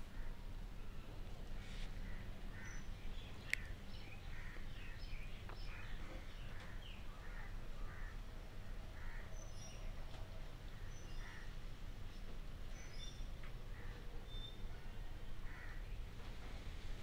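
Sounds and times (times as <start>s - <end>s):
birds chirping: 0.0s - 8.2s
low steady hum: 0.0s - 17.0s.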